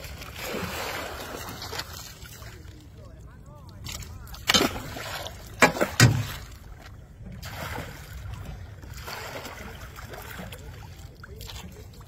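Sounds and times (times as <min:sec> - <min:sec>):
water sloshing against net: 0:00.0 - 0:02.9, 0:03.8 - 0:12.0
fish splashing into water: 0:04.3 - 0:06.6.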